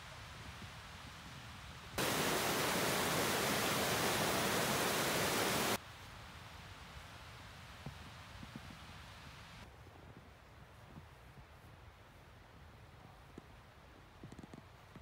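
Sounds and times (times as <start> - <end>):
loud steady hiss: 0.0 - 9.7.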